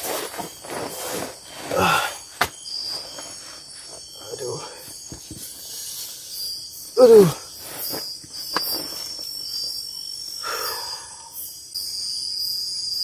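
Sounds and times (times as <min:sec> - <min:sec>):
crickets and insects chirping: 0:00.0 - 0:13.0
high pulsing insect trill: 0:00.0 - 0:13.0
man groaning: 0:01.7 - 0:02.2, 0:07.0 - 0:07.4.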